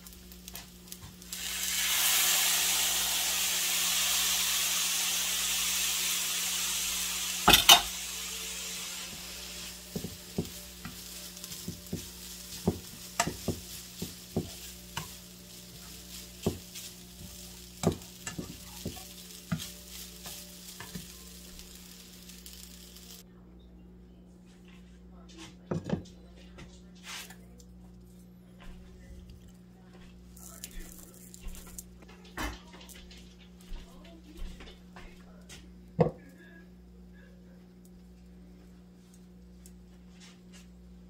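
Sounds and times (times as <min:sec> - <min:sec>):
spoon stirring and scraping rice: 0:00.0 - 0:01.5, 0:07.0 - 0:23.2
rice sizzling in a frying pan: 0:00.0 - 0:23.2, 0:30.3 - 0:41.0
spoon knocking on pan: 0:09.9 - 0:21.1.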